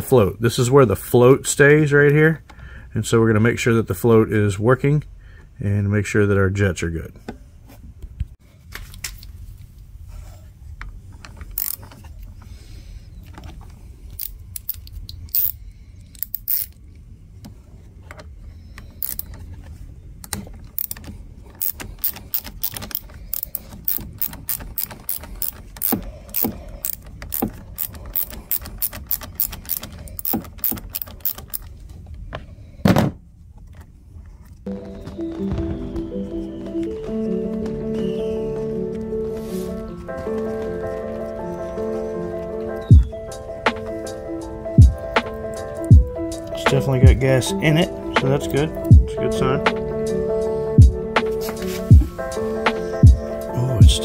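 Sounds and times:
socket ratchet clicking: 0:11.6 - 0:11.8, 0:14.2 - 0:16.8, 0:19.0 - 0:19.3, 0:20.8 - 0:31.7.

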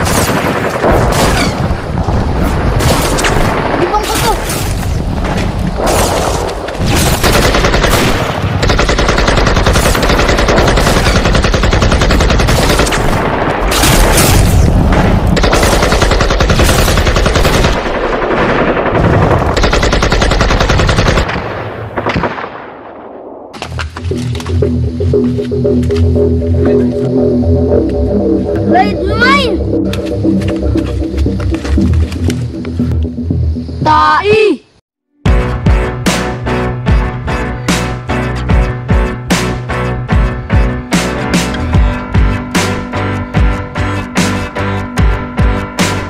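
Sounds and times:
machine-gun fire bursts: 0:06.8 - 0:14.2, 0:14.9 - 0:21.4.

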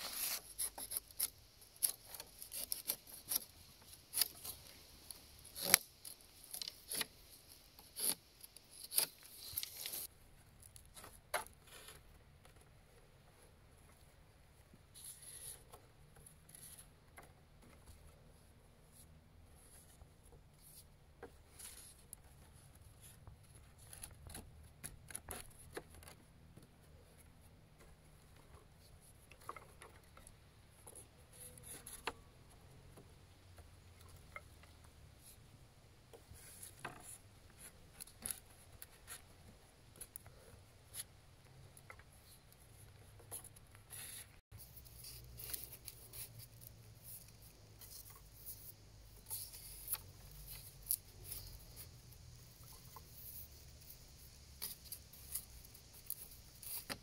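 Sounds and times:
sticks rubbing and clicking: 0:00.0 - 0:14.1, 0:36.1 - 0:57.0.

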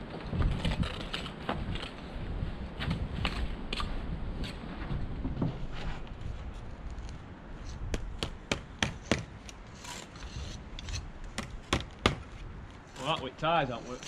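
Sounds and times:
soft scrape on stone: 0:09.7 - 0:11.1.

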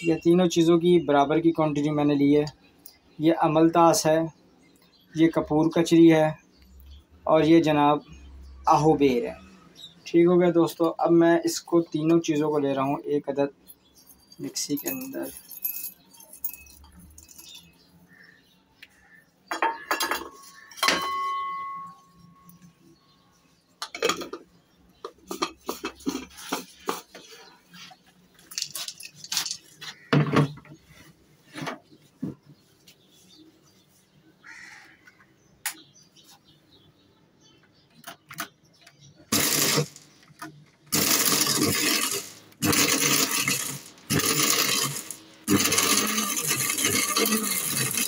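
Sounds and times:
dry seeds rattling into glass jar: 0:14.3 - 0:17.7, 0:28.5 - 0:29.7, 0:40.9 - 0:48.0
steel bowl clanging: 0:19.6 - 0:22.1.

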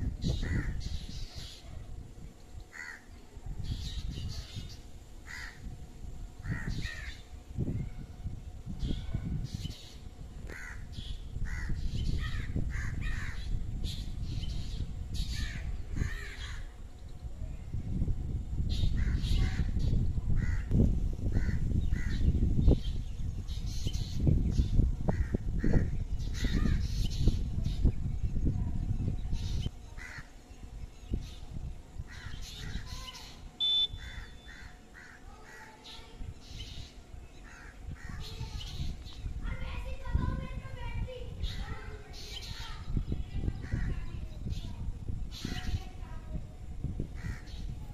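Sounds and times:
crows cawing: 0:02.7 - 0:03.1, 0:05.2 - 0:05.7, 0:06.4 - 0:07.2, 0:10.5 - 0:13.4, 0:30.0 - 0:30.3, 0:34.0 - 0:35.8, 0:37.4 - 0:38.2, 0:47.2 - 0:47.6.

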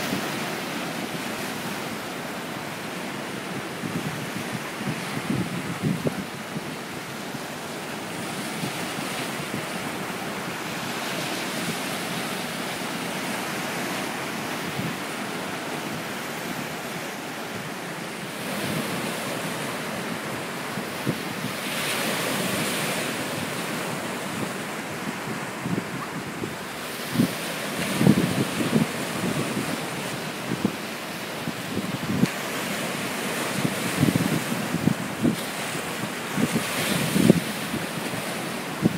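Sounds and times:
surf breaking on rocks: 0:17.7 - 0:30.8.

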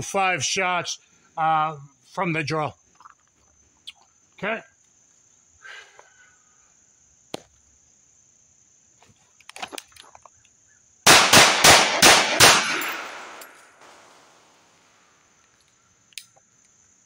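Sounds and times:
rapid pistol shots: 0:11.1 - 0:13.6
gunshot echoes: 0:11.1 - 0:14.3.

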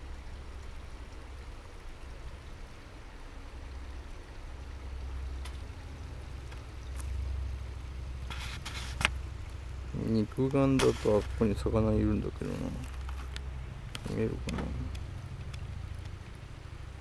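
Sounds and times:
stream water rushing: 0:00.0 - 0:17.0
faint clicks: 0:12.8 - 0:16.4.

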